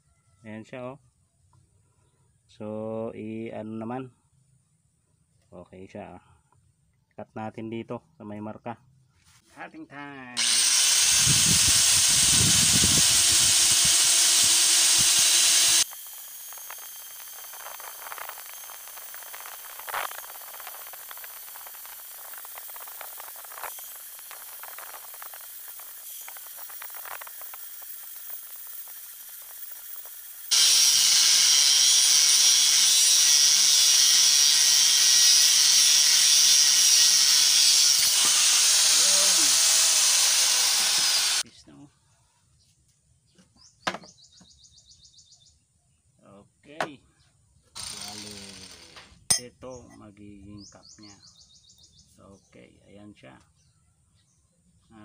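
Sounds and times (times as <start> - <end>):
angle grinder cutting steel: 10.4 - 41.4, 47.8 - 49.5.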